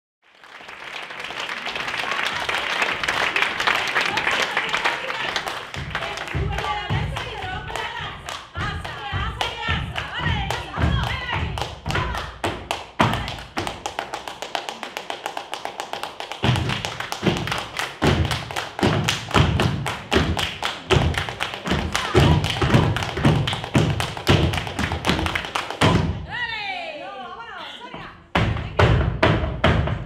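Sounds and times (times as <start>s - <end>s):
rhythmic hand clapping: 0.3s - 26.2s
feet stamping on stage: 5.2s - 14.0s.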